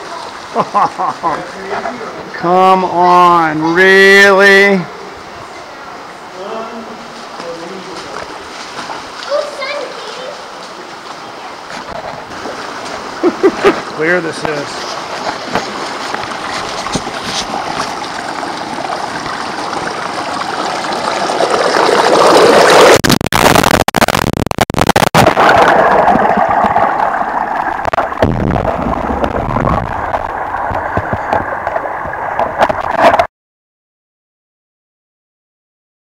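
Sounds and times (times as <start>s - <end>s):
river water rushing over rocks: 25.2s - 33.3s.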